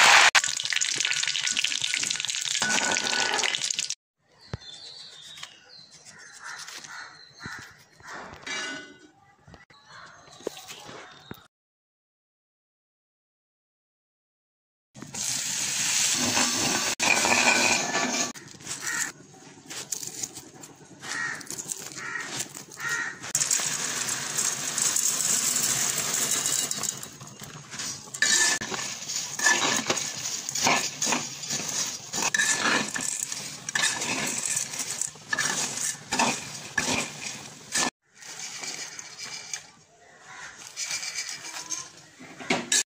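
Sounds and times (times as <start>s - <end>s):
lentils sizzling in oil: 0.0s - 4.0s, 15.0s - 39.7s
metal spoon scraping a pan: 7.6s - 9.1s, 16.0s - 42.8s.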